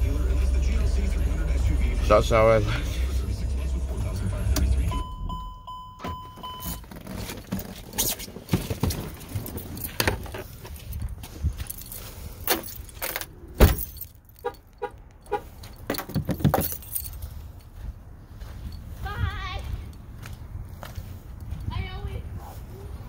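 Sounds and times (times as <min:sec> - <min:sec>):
low rumble: 0:00.0 - 0:05.7
car keys jangling: 0:06.0 - 0:17.8.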